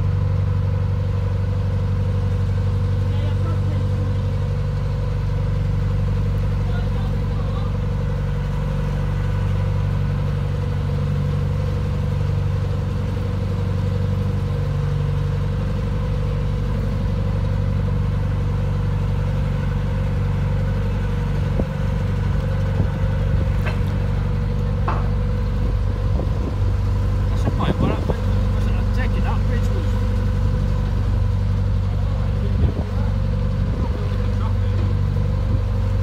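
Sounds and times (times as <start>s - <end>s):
boat engine running: 0.0s - 36.0s
light knocks: 24.8s - 25.2s.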